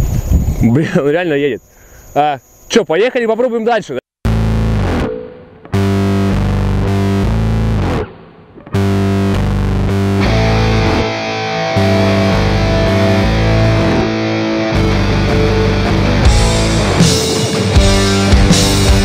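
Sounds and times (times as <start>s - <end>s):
bass guitar: 4.3s - 19.0s
distorted electric guitar chords: 4.3s - 19.0s.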